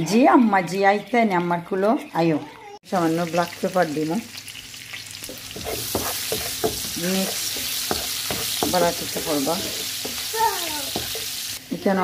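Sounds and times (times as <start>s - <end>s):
onions sizzling in oil: 2.9s - 12.0s
spatula scraping pan: 5.2s - 11.6s.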